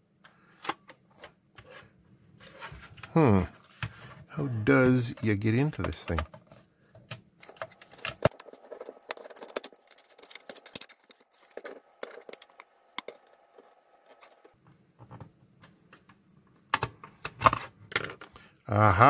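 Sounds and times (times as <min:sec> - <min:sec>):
metal pick scraping plastic: 0:03.7 - 0:15.3.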